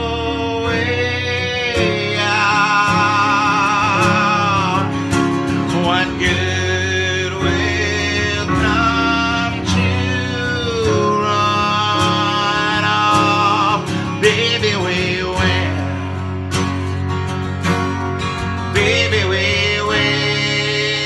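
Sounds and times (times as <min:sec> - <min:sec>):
man singing with vibrato: 0:00.0 - 0:16.5, 0:18.5 - 0:21.0
instrumental accompaniment: 0:00.0 - 0:21.0.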